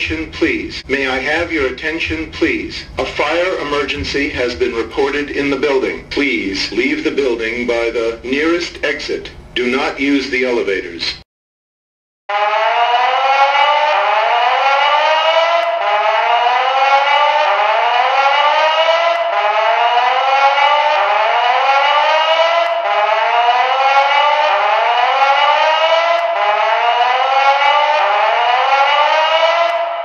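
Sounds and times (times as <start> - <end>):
fire alarm whoop tone: 12.3 - 30.0.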